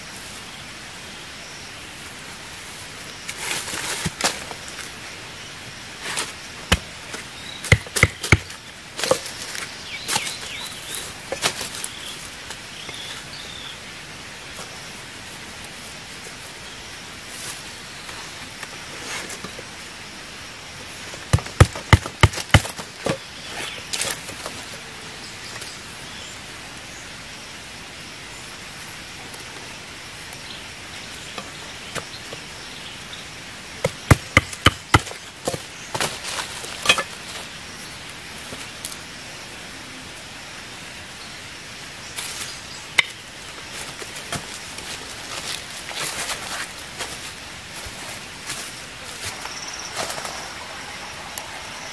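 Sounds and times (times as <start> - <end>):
forest background hiss: 0.0 - 51.9
machete knocking on wooden sticks: 7.7 - 9.2, 21.3 - 23.2, 33.8 - 35.6.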